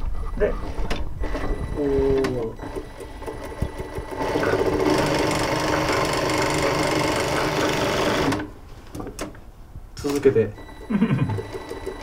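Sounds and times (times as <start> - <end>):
industrial sewing machine running: 2.6 - 8.5.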